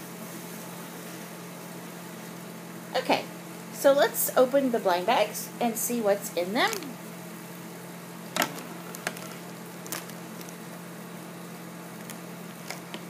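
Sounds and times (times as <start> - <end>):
low room hum: 0.0 - 13.0
clicks and rustles of handling toys: 8.4 - 10.6, 12.0 - 13.0.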